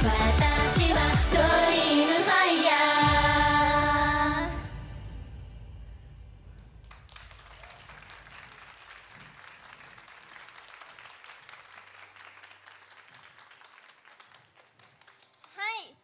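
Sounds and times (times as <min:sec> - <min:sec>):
audience applauding: 0:06.8 - 0:15.8.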